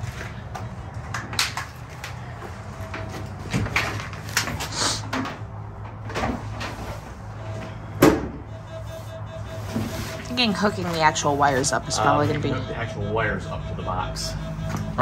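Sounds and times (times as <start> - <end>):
knocks and clunks of handling things: 0.0 - 8.5
steady low hum: 5.4 - 15.0.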